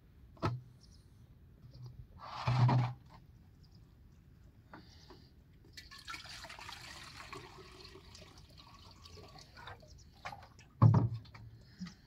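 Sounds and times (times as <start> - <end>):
water pouring: 5.8 - 10.8.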